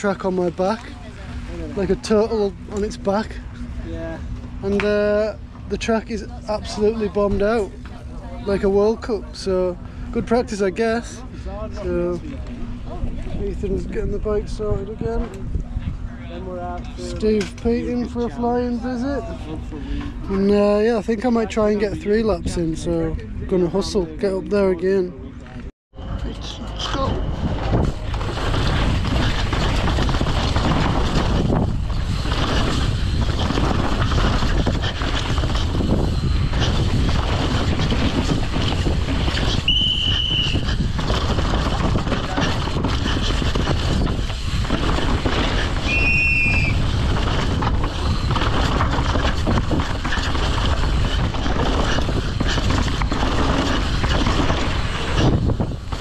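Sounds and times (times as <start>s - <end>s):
bike rolling noise: 0.0s - 56.0s
wind on microphone: 27.0s - 56.0s.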